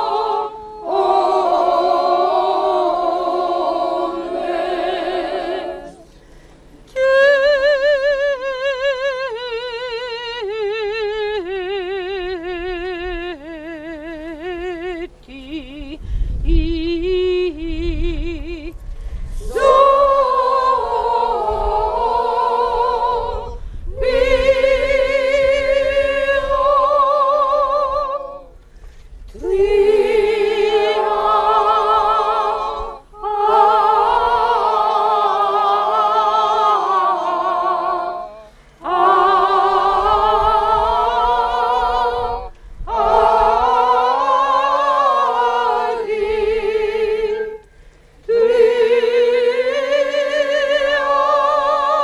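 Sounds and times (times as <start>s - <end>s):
women's choir singing: 0.0s - 6.1s, 19.4s - 28.6s, 29.3s - 47.6s, 48.3s - 52.0s.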